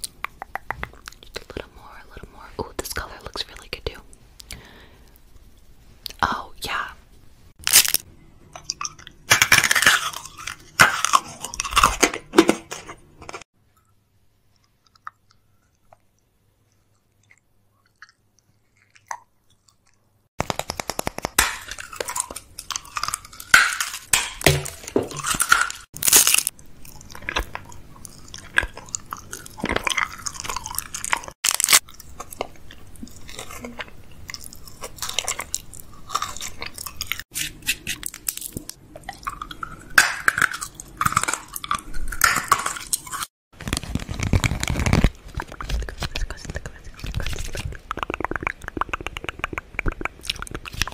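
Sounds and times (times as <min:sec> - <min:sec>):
chewing and wet mouth sounds: 0:00.0 - 0:02.0, 0:08.5 - 0:12.0, 0:14.5 - 0:20.3, 0:21.3 - 0:24.1, 0:24.8 - 0:43.3, 0:44.0 - 0:50.9
hard candy crunching: 0:07.6 - 0:13.5, 0:16.8 - 0:50.9.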